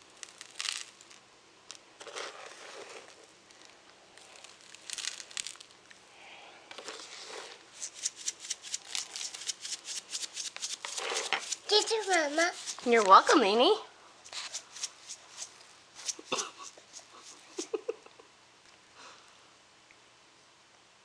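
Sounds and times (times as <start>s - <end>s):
sprinkles rattling in shaker: 0.0s - 5.7s, 7.7s - 13.4s, 14.3s - 18.0s.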